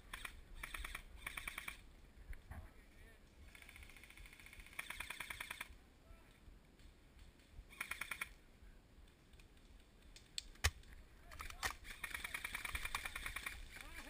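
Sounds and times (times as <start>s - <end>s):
airsoft rifle bursts clicking: 0.1s - 1.8s, 3.5s - 5.8s, 6.8s - 8.4s, 9.1s - 14.0s.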